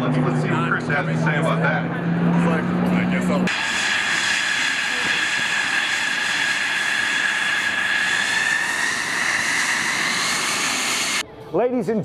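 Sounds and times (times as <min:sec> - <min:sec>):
jet engine whine: 0:00.0 - 0:11.2
jet noise rushing: 0:03.2 - 0:11.2.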